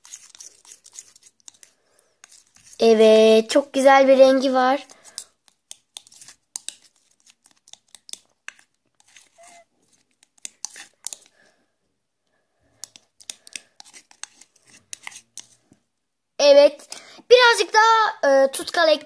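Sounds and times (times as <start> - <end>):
spoon scraping glass bowl: 0.0 - 2.8, 8.5 - 11.3, 13.2 - 15.6.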